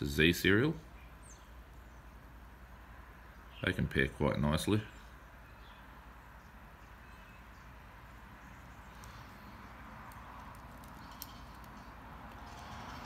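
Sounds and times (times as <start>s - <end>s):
watch bracelets clicking on table: 10.0s - 12.6s.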